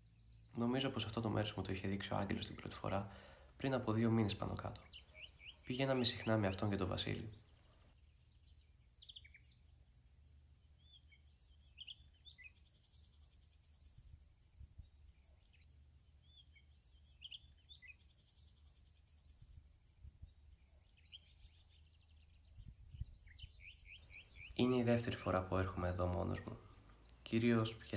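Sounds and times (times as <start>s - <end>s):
high insect tone: 0.0s - 27.9s
rapid insect chirring: 0.0s - 27.9s
short bird chirps: 20.6s - 24.7s.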